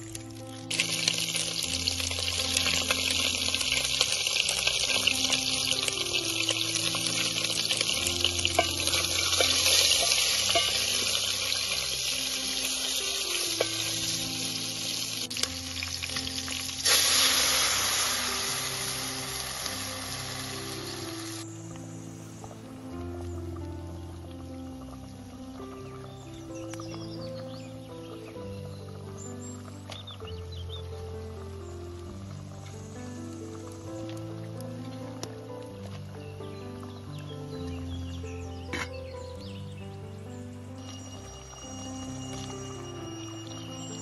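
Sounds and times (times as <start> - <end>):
meat sizzling in a pot: 0.0 - 21.8, 24.8 - 27.2, 40.8 - 44.0
loud frying hiss: 0.0 - 23.0.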